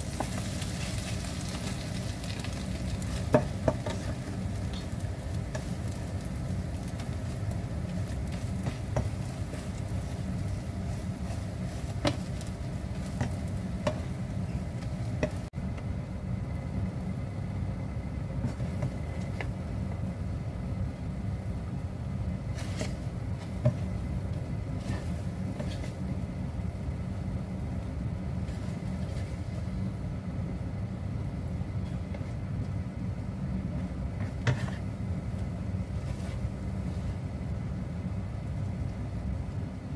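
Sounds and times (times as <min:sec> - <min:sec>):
omelet sizzling in a pan: 0:00.0 - 0:15.5
steady low hum: 0:00.0 - 0:39.9
plastic spatula scraping a pan: 0:22.5 - 0:24.0, 0:24.8 - 0:26.1, 0:34.2 - 0:34.9.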